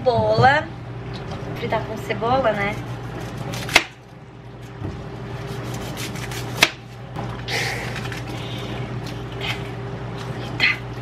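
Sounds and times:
onion skin rustling: 2.4s - 10.6s.

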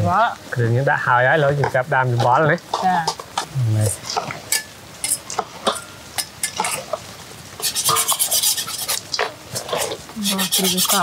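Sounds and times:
metal spoon scraping bowl: 7.6s - 11.0s.

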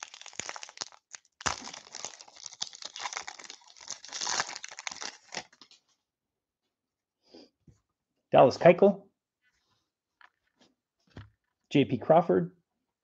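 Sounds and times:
foil wrapper crinkling and tearing: 0.0s - 5.8s.

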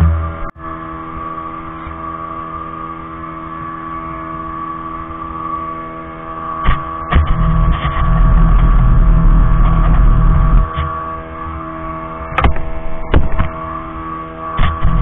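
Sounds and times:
speedboat engine droning: 0.0s - 15.0s
sharp thumps: 12.3s - 13.6s.

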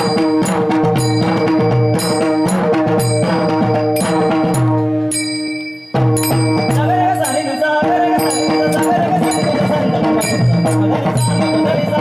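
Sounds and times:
drum strokes: 0.0s - 12.0s
held tones: 0.0s - 12.0s
metallic cymbal strikes: 0.0s - 12.0s
person singing: 6.6s - 12.0s.

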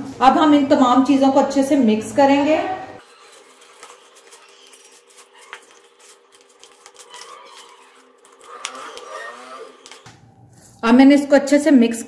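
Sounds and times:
spatula scraping plastic bowl: 3.0s - 10.1s.

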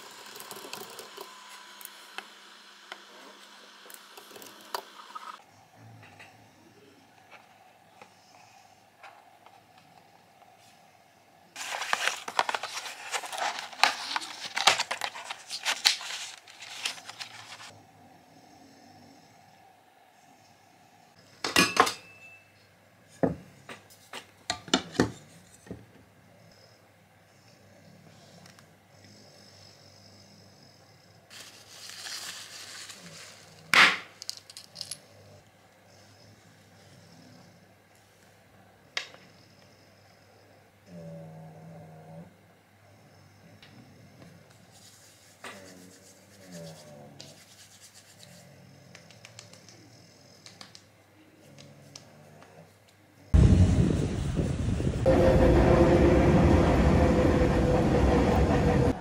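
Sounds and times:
tissue paper rustling: 11.6s - 17.8s, 31.3s - 33.7s.

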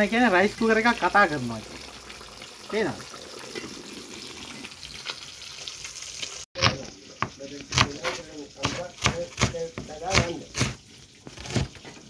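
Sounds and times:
knife chopping on cutting board: 6.6s - 11.8s.

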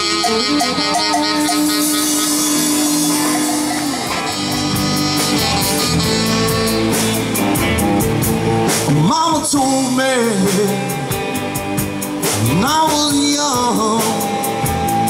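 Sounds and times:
live rock band playing: 0.0s - 15.0s
drum hits: 1.2s - 9.7s.

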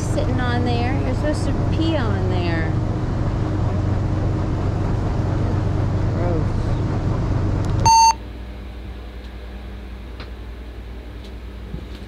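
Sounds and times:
boat engine running: 0.0s - 8.2s
low steady hum: 0.0s - 12.0s
short electronic beep: 7.8s - 8.2s.

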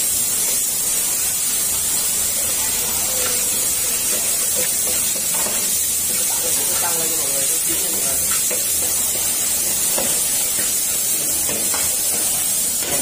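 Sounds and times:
meat sizzling in a wok: 0.0s - 13.0s
metal spatula scraping: 2.0s - 6.9s.

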